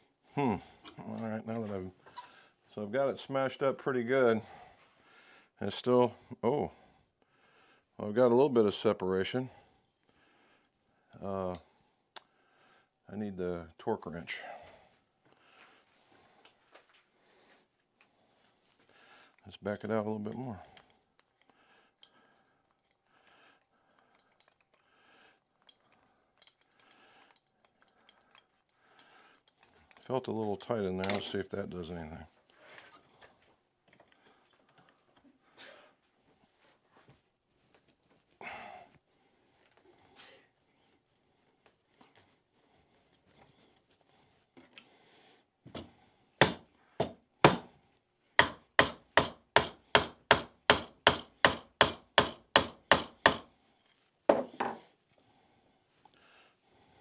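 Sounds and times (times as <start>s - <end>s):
small metallic clicks: 25.6s - 30.1s.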